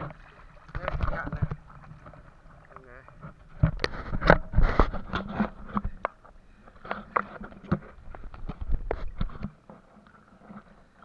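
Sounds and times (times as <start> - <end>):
wooden boat knocks and clatter: 0.0 - 9.8
water splashing: 0.0 - 11.0.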